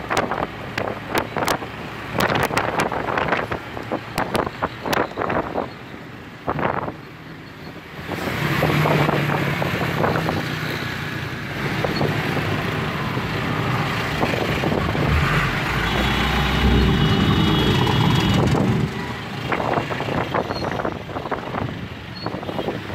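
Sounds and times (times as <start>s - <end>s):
diesel truck passing: 12.3s - 21.0s.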